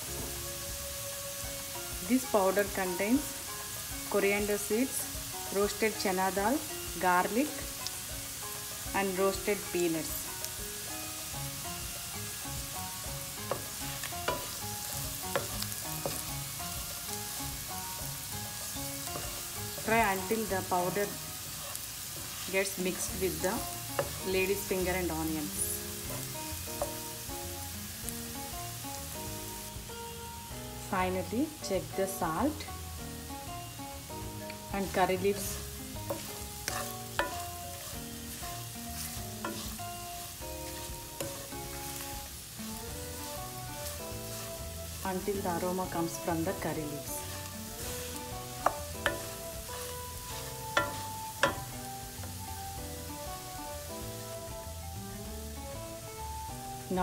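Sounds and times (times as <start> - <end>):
vegetables sizzling in oil: 0.0 - 57.0
spatula scraping pan: 13.4 - 17.7, 18.6 - 24.7, 35.0 - 52.2.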